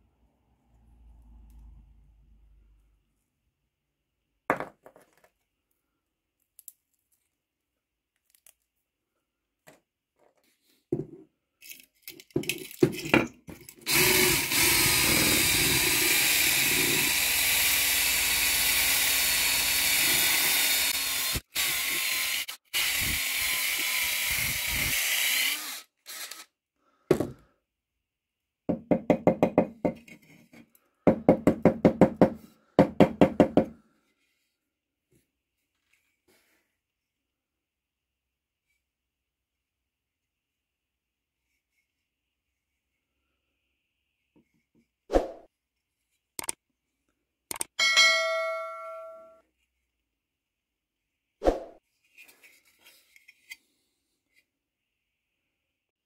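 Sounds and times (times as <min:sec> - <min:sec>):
power drill whirring: 0:13.9 - 0:26.5.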